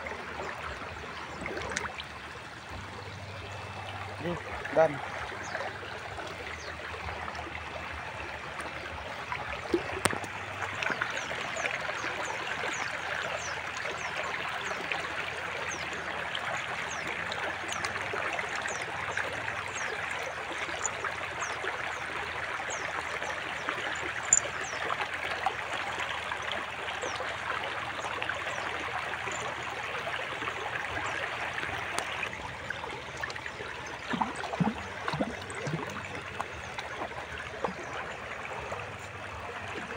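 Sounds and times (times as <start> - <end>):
stream babbling: 0.0 - 39.9
sharp water splashes: 33.8 - 37.9.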